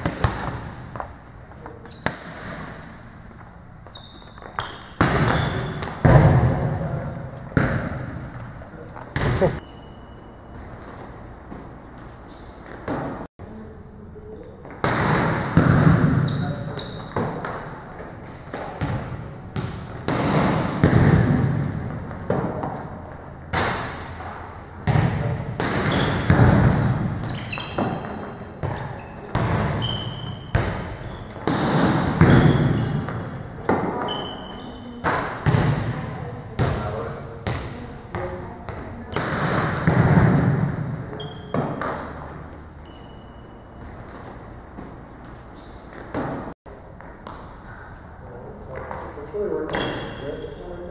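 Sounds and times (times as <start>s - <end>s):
forearms smacking volleyball: 0.0s - 1.0s, 1.9s - 2.8s, 4.6s - 6.7s, 7.4s - 8.2s, 9.1s - 9.6s, 14.7s - 16.4s, 18.5s - 22.8s, 23.5s - 34.1s, 35.0s - 40.9s
balls bouncing on gym floor: 0.0s - 9.6s, 10.6s - 13.3s, 14.6s - 42.6s, 43.8s - 47.6s.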